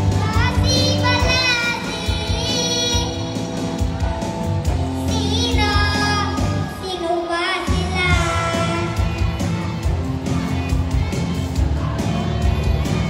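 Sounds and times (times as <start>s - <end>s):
backing music over loudspeaker: 0.0s - 13.0s
boy singing into a microphone: 0.1s - 3.2s, 5.0s - 9.0s.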